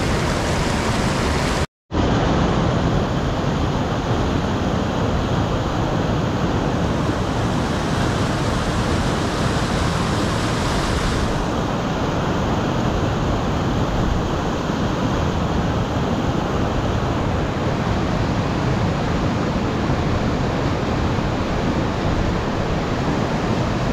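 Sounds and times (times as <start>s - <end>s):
river rapids rushing: 0.0s - 1.7s, 6.7s - 11.9s.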